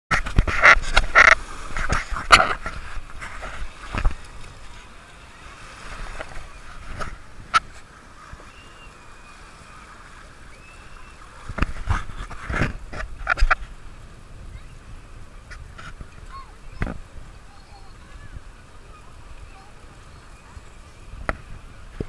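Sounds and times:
small waves washing: 0.1s - 22.0s.

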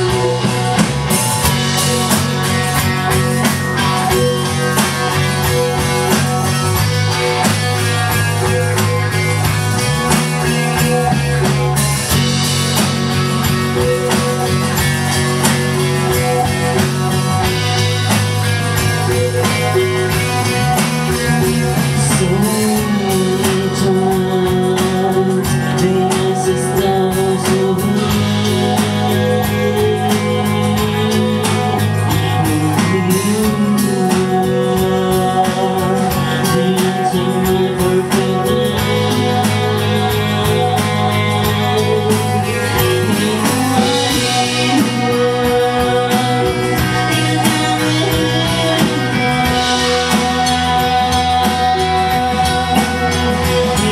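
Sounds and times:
bass guitar: 0.0s - 53.9s
drum kit: 0.0s - 53.9s
electric guitar: 0.0s - 53.9s.

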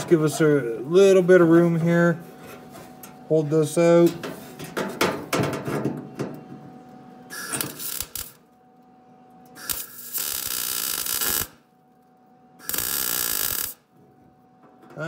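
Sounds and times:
welding arc crackling: 7.3s - 8.5s, 9.6s - 11.6s, 12.6s - 13.8s.

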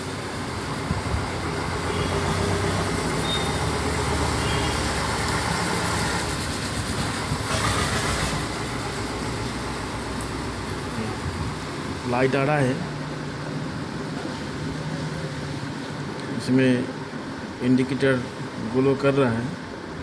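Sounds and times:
brief loud hiss: 7.4s - 8.6s.

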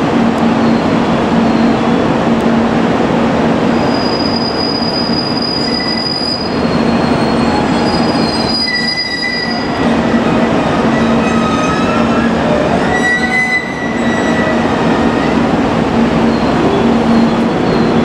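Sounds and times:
diesel railcar rumbling: 0.0s - 18.0s
wheels squealing: 3.8s - 18.0s.

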